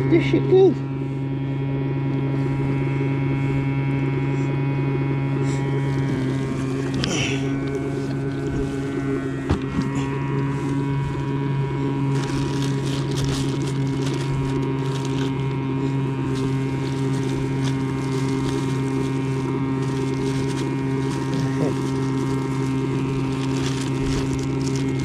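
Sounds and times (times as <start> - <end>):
low engine hum: 0.0 - 25.0
plastic bags rustling: 5.8 - 25.0.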